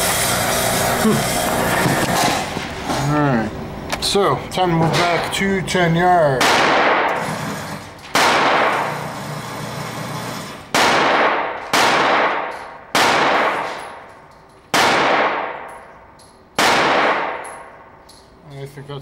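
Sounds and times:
pistol gunshots echoing indoors: 6.3s - 7.3s, 8.0s - 9.1s, 10.7s - 18.0s.

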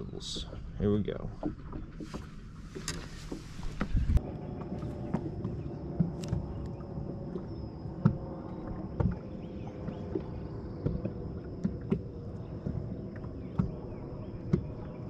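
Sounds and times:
steady low hum: 0.0s - 15.0s
waves slapping against boat hull: 0.0s - 15.0s.

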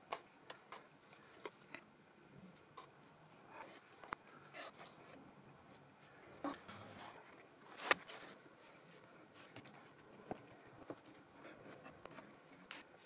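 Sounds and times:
paper rustling: 7.0s - 8.4s.

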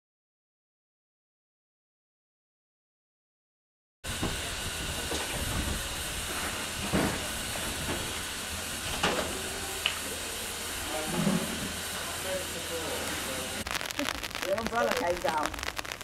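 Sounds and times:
steam hissing: 4.1s - 16.0s.

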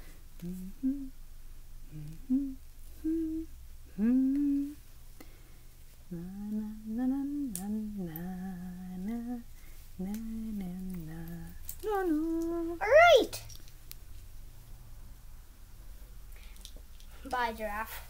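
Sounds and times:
child humming a tune: 0.4s - 1.2s, 1.9s - 4.8s, 6.1s - 7.3s, 10.0s - 13.1s.

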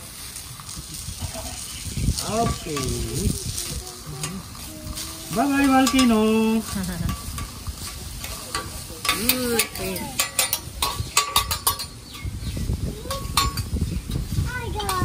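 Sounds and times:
vegetables sizzling: 0.0s - 15.0s
spatula clacking on griddle: 0.6s - 15.0s.

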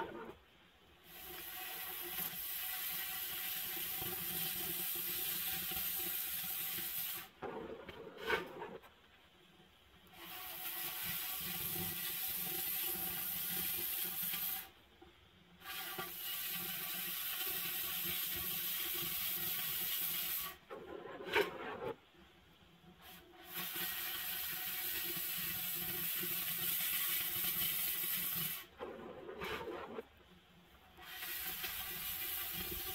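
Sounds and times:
cutting torch hissing: 1.0s - 7.3s, 10.1s - 14.7s, 15.6s - 20.6s, 23.0s - 28.8s, 31.0s - 32.9s.

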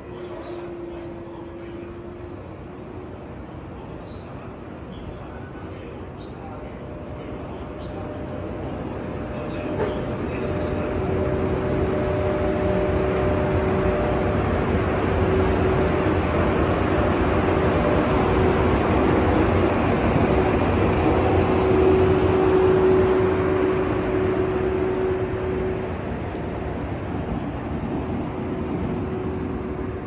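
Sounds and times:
electric locomotive humming: 0.0s - 30.0s
wheels rumbling on rails: 7.8s - 30.0s.

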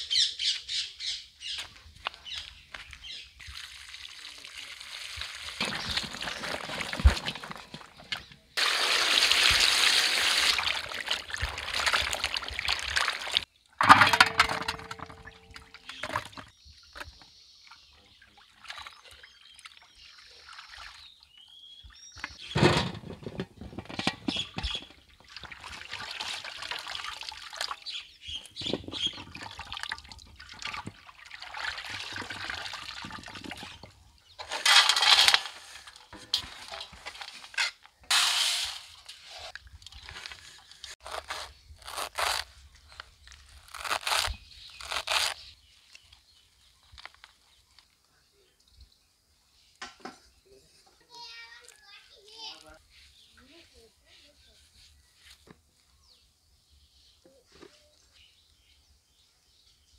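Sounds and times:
water pouring onto the ground: 3.4s - 8.0s, 8.6s - 13.5s, 25.2s - 28.0s, 28.6s - 34.0s.

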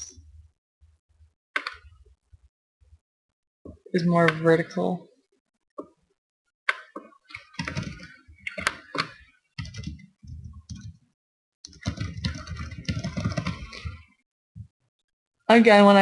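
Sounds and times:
typing on computer keyboard: 7.3s - 11.0s, 11.7s - 14.1s.

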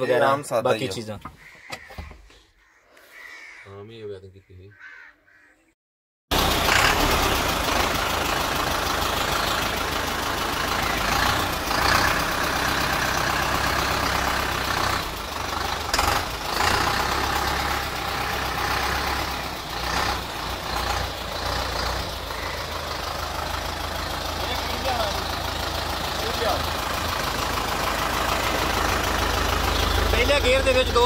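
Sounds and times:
tractor diesel engine idling: 6.3s - 31.0s.

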